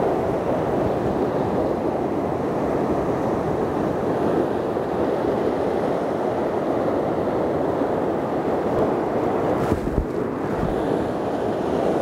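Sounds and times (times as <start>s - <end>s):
surf breaking over rocks: 8.6s - 12.0s.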